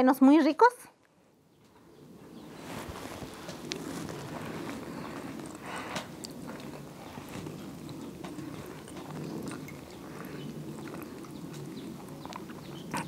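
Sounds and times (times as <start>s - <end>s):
low background noise: 0.0s - 13.0s
person chewing: 3.6s - 13.0s.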